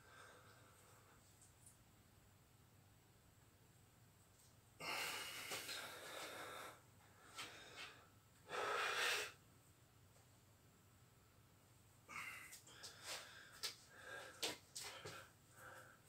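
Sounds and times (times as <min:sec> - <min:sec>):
man breathing hard: 0:04.8 - 0:09.4, 0:12.1 - 0:16.0.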